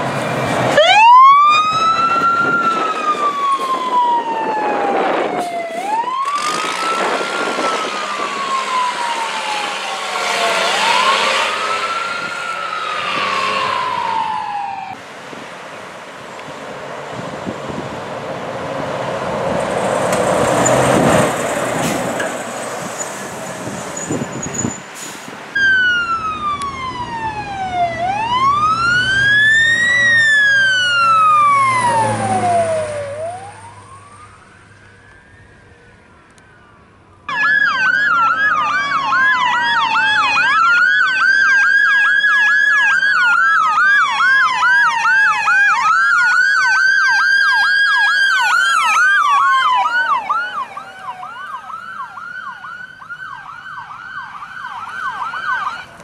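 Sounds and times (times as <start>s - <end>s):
fire truck siren wailing: 0.0s - 15.0s, 25.5s - 56.0s
fast siren yelp: 0.8s - 15.0s, 25.6s - 56.0s.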